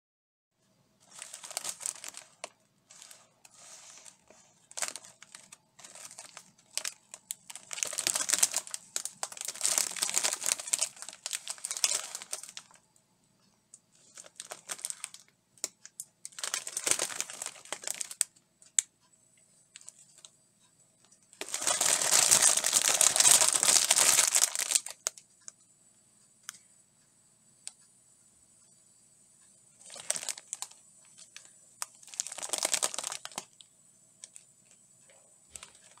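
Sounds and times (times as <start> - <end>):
plastic package crinkling: 1.0 - 12.8, 14.0 - 15.3, 15.9 - 18.8, 19.8 - 20.3, 21.4 - 25.2, 29.8 - 33.6, 34.2 - 34.8, 35.5 - 36.0.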